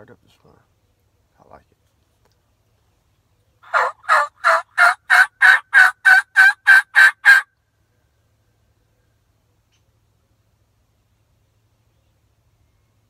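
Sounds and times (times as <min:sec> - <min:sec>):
turkey call yelps: 0:03.6 - 0:07.5.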